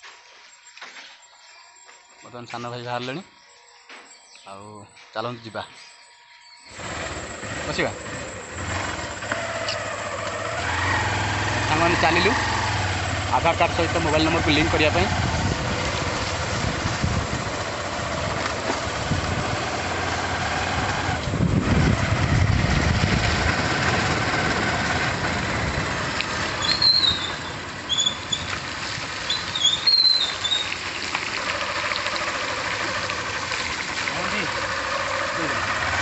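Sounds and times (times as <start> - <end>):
motorcycle engine running: 6.7 - 36.0
wind and road noise: 6.7 - 36.0.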